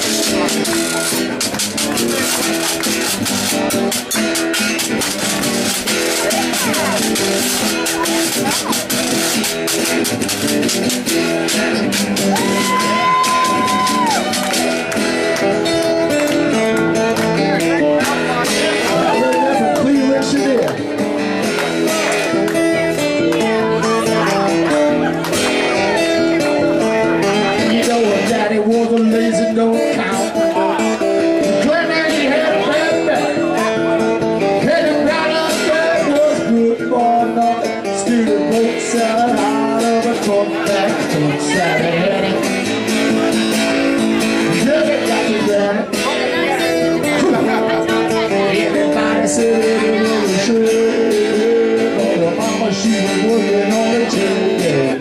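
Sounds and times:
acoustic guitar strummed: 0.0 - 55.0
long high whoop: 12.3 - 14.6, 19.0 - 19.8.

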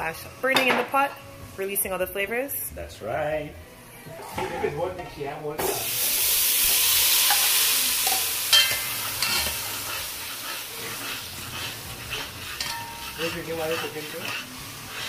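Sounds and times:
liquid sizzling in hot oil: 5.6 - 15.0
spoon clacking on pot: 7.3 - 9.6, 12.2 - 13.3.

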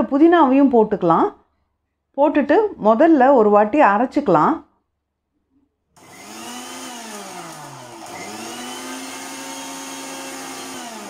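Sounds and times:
mixer grinder running: 6.0 - 11.0.

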